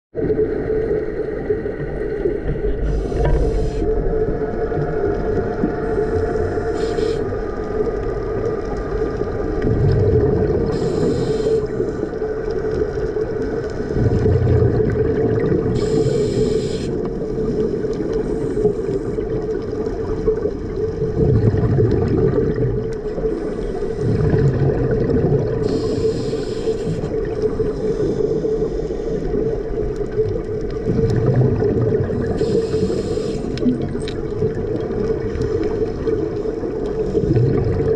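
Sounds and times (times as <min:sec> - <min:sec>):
exhaled bubbles rumbling: 0:00.2 - 0:37.9
steady low hum: 0:00.5 - 0:19.7
regulator inhalation hiss: 0:02.8 - 0:03.9, 0:06.0 - 0:07.4, 0:10.7 - 0:12.1, 0:15.7 - 0:17.1, 0:25.6 - 0:29.4, 0:32.4 - 0:33.6.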